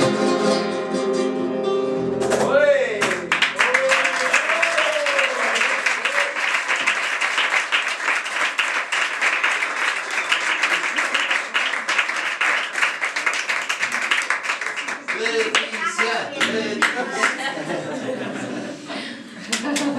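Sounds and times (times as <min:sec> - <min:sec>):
audience applauding: 0:03.0 - 0:18.4, 0:19.4 - 0:19.9.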